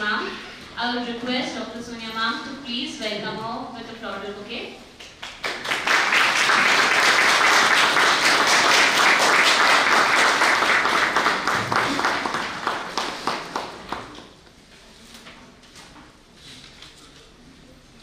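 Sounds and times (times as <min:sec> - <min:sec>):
audience applause: 0:05.3 - 0:14.2.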